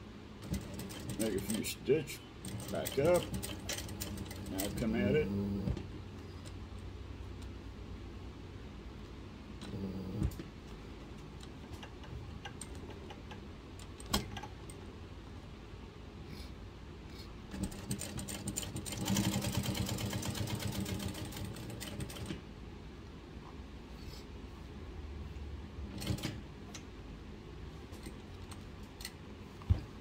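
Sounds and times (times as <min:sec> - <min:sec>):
sewing machine stitching: 0:00.4 - 0:01.7, 0:02.4 - 0:05.9, 0:17.5 - 0:22.4.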